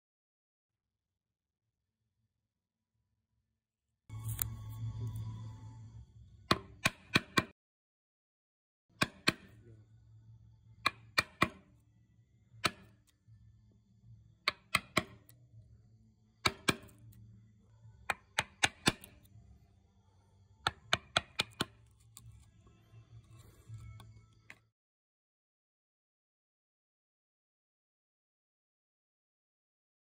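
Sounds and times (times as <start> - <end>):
chisel tapping into wood: 9.0 - 9.5, 10.8 - 11.7, 14.5 - 15.3, 16.4 - 17.0, 20.7 - 22.0.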